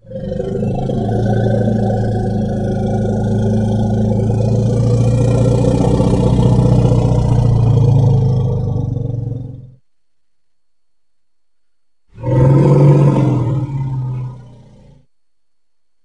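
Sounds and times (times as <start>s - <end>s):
elephant rumble call: 0.0s - 9.8s, 12.2s - 15.1s.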